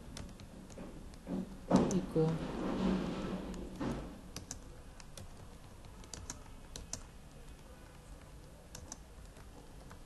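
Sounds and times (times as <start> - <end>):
typing on computer keyboard: 0.0 - 0.8, 4.3 - 10.0.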